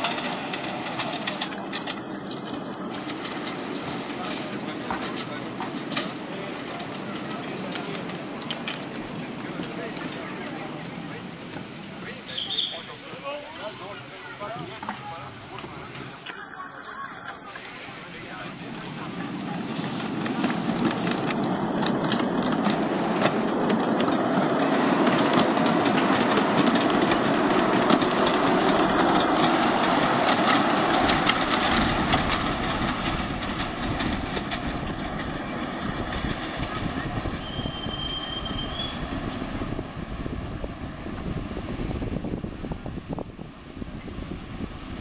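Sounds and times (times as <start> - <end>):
steam locomotive chuffing: 0.0 - 45.0
short high whistle: 12.3 - 12.9, 37.4 - 39.1.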